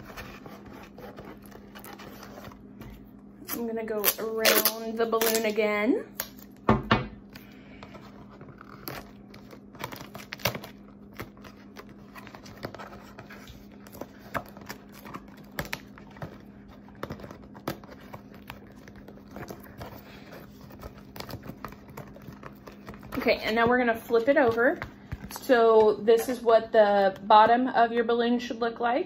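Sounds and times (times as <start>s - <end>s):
masking tape crinkling and tearing: 3.5s - 5.6s, 8.3s - 23.6s.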